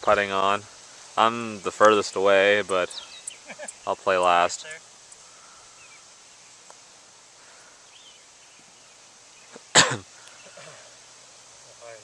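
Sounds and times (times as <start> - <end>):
person coughing: 9.8 - 10.8.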